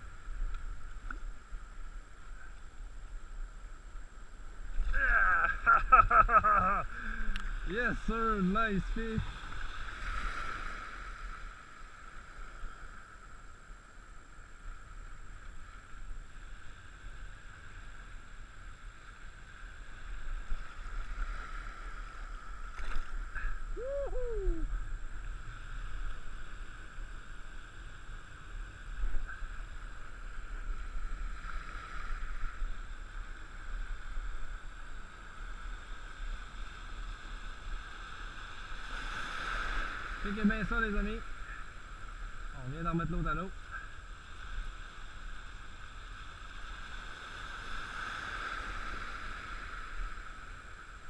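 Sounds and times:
wind rumble on microphone: 0:00.0 - 0:51.0
short falling cry: 0:23.7 - 0:24.7.

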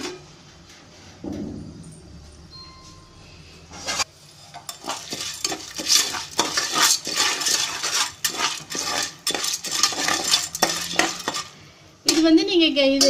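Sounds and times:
spoon scraping metal pot: 0:03.7 - 0:12.3.

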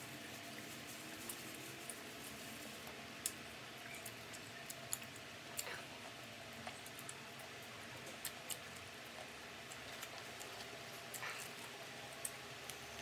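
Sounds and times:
faint steady hiss: 0:00.0 - 0:13.0
person chewing crispy food: 0:04.1 - 0:13.0.

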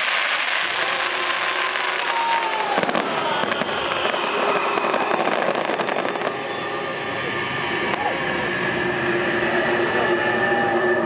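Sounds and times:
fireworks bursting and crackling: 0:00.0 - 0:06.9.

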